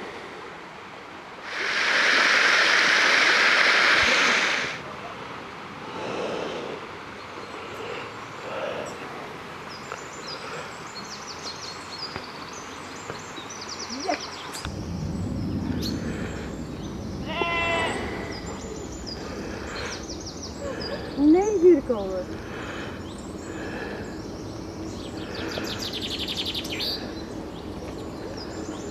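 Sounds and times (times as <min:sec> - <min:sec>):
stream water rushing: 0:00.0 - 0:12.5
small birds chirping: 0:07.1 - 0:28.9
sheep bleating: 0:17.2 - 0:18.2.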